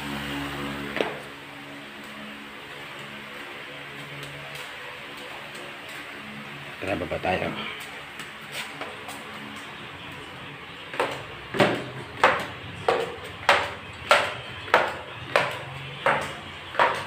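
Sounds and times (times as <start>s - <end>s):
footsteps on wooden stairs: 10.9s - 17.0s.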